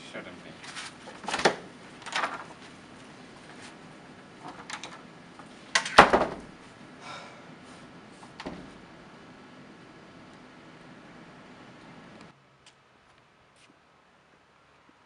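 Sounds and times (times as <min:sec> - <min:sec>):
door closing thud: 0:01.2 - 0:02.5, 0:05.8 - 0:06.6, 0:08.3 - 0:08.8.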